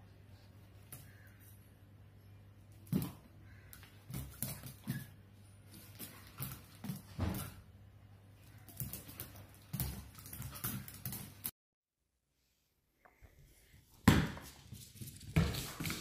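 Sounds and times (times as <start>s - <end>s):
dog claws skittering on tile: 8.4s - 11.5s.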